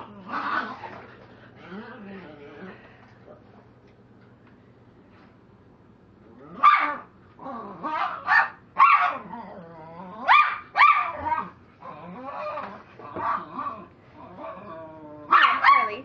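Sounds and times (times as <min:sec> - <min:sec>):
dog barking: 0:06.6 - 0:07.1, 0:07.9 - 0:09.2, 0:10.3 - 0:11.5, 0:15.3 - 0:16.0.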